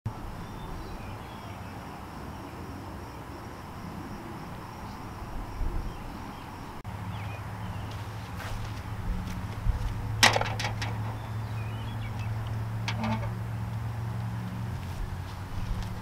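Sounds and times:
high insect drone: 0.2 - 7.8.

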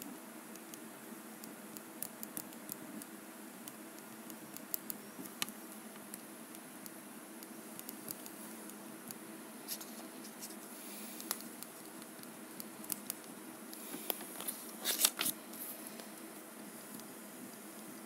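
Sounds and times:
hands scratching and rustling: 9.6 - 13.3.

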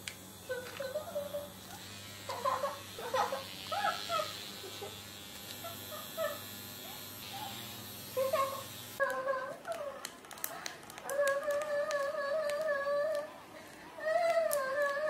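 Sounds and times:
low electric buzz: 0.0 - 9.0.

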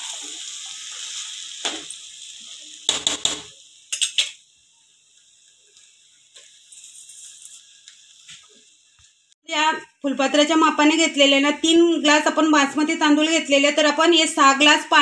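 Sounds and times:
rice and vegetables sizzling: 0.0 - 15.0
metal spoon scraping a pot: 6.7 - 7.7.

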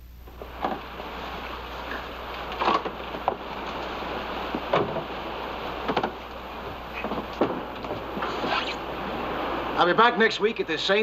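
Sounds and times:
water around a boat: 0.4 - 11.0.

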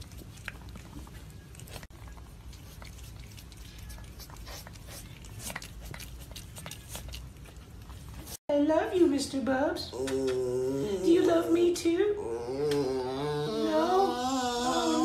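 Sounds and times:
cat chewing and licking: 0.0 - 8.4.

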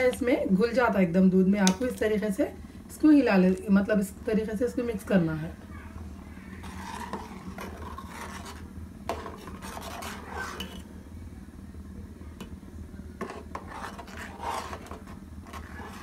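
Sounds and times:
metal ladle stirring in pot: 6.5 - 10.9, 13.2 - 16.0.

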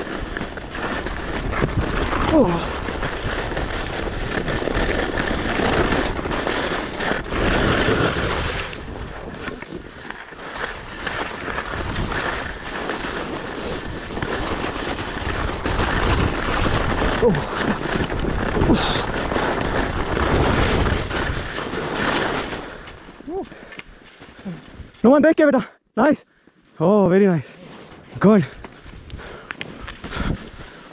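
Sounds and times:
skis scraping over snow: 0.0 - 25.3, 26.8 - 30.9
wind buffeting microphone: 28.2 - 30.9.

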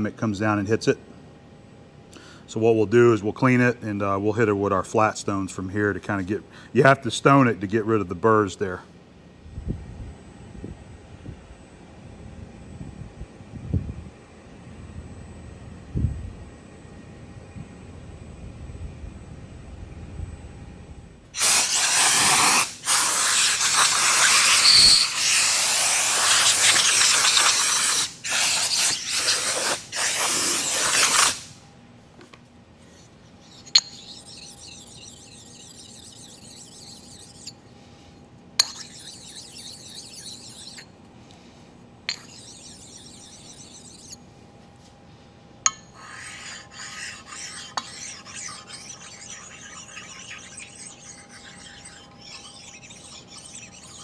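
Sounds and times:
stones rubbing on metal: 21.4 - 31.5, 32.8 - 37.6, 38.6 - 41.0, 42.1 - 44.2, 45.7 - 54.0
compressed air blasting: 21.4 - 31.6.

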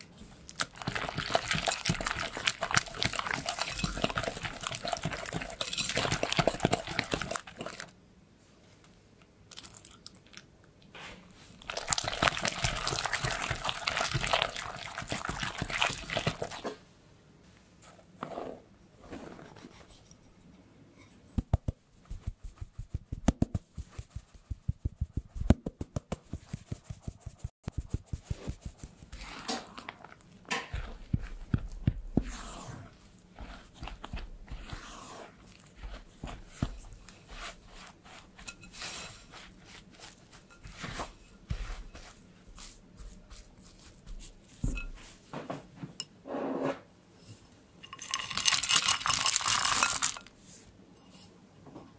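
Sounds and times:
spatula scraping dough in bowl: 0.8 - 7.9, 26.3 - 43.9
flour sifted through sieve: 22.0 - 25.5, 26.2 - 45.2, 47.9 - 51.3.

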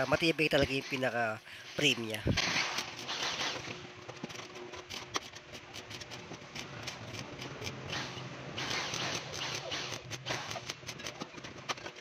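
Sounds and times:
arc welding crackling: 4.6 - 11.2.

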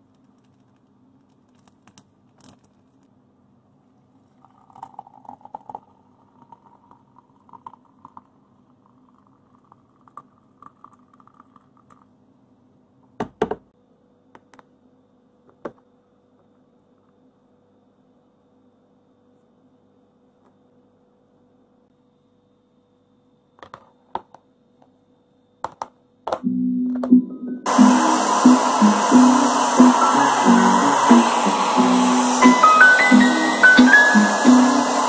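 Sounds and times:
hot water poured into a mug: 4.3 - 12.0.

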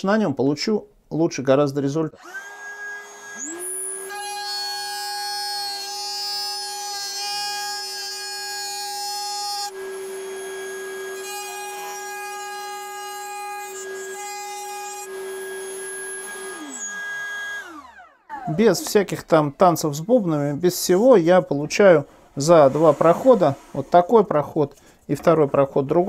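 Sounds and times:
router winding down: 2.2 - 19.2
router cutting wood: 2.2 - 20.0, 22.1 - 24.4.

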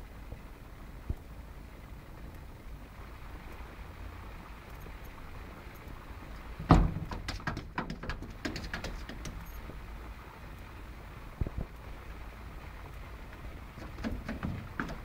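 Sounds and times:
cat thumping against glass door: 6.6 - 9.5, 13.8 - 15.0
taps and knocks: 6.6 - 9.6, 13.8 - 15.0.

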